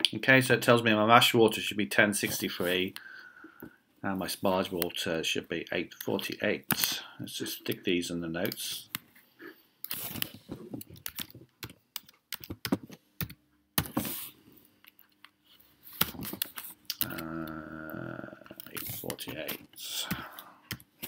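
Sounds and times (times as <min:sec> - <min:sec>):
person humming: 0:17.0 - 0:18.6.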